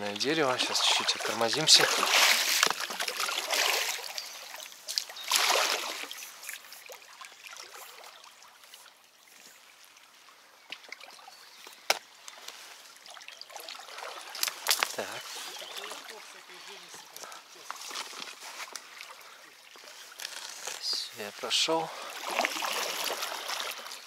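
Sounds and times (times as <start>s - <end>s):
trickling water: 0.0s - 24.0s
paddle strokes splashing in water: 0.1s - 9.0s, 21.9s - 24.0s.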